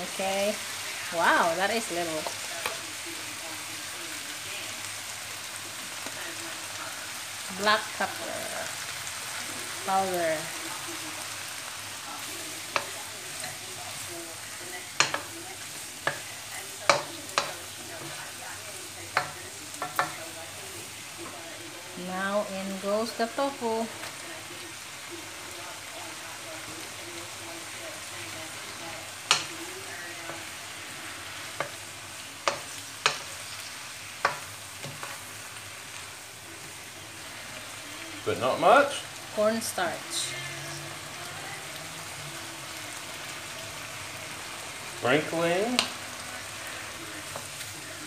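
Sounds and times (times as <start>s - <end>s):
vegetables sizzling in a wok: 0.0s - 48.0s
spatula knocking against pan: 15.0s - 15.3s, 16.9s - 18.2s, 19.2s - 20.2s.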